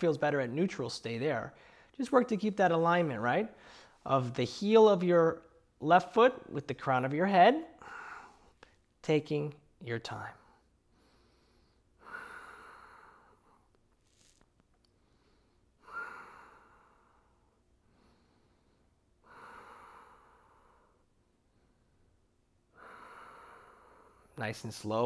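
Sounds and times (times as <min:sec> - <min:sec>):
man breathing slowly: 0:01.6 - 0:02.0, 0:03.5 - 0:04.1, 0:07.8 - 0:08.8, 0:10.6 - 0:24.4.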